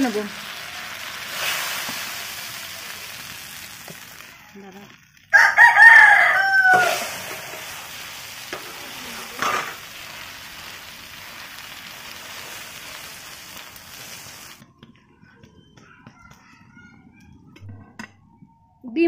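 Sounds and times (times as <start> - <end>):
food sizzling in a pan: 0.0 - 14.6
rooster crowing: 5.3 - 7.7
metal spatula scraping pan: 6.7 - 10.1.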